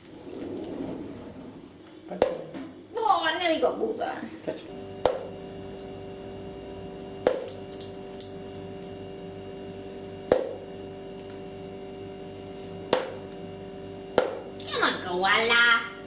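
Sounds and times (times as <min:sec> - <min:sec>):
steady hum: 0:00.0 - 0:16.0
darts striking a dartboard: 0:07.2 - 0:07.5, 0:10.3 - 0:10.6, 0:12.9 - 0:13.2, 0:14.2 - 0:14.4.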